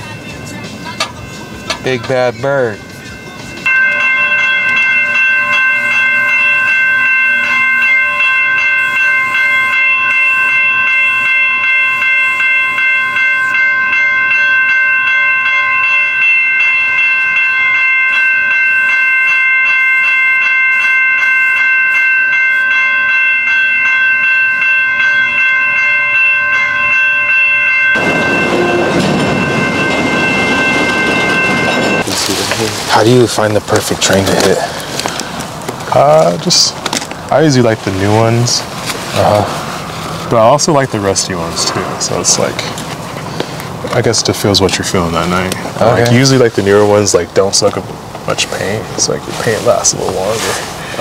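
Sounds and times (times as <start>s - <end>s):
train rushing rumble: 26.6s - 51.0s
freight train high-pitched squeal: 28.0s - 32.0s, 50.4s - 51.0s.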